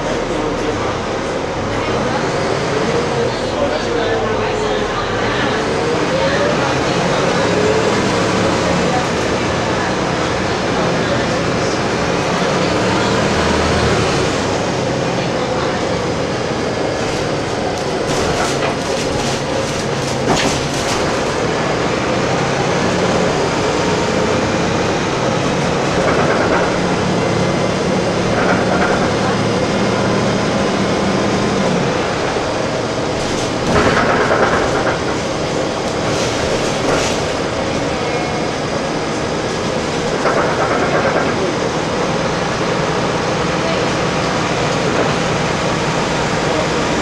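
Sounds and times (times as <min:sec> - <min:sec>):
bus engine drone: 0:00.0 - 0:47.0
road noise: 0:00.0 - 0:47.0
rattles and knocks: 0:17.0 - 0:21.5, 0:33.1 - 0:37.9.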